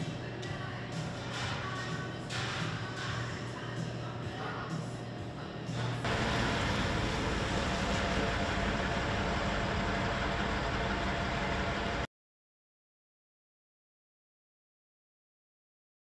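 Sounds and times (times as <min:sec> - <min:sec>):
street traffic roar: 0:06.1 - 0:12.1.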